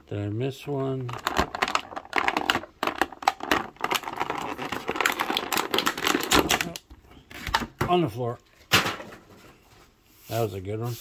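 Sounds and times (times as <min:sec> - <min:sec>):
plastic bag crinkling: 0:01.0 - 0:06.8.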